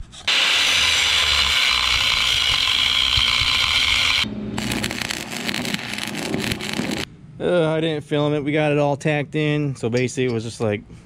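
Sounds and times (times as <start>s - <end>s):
angle grinder cutting steel: 0.3s - 7.1s
low steady hum: 1.4s - 11.0s.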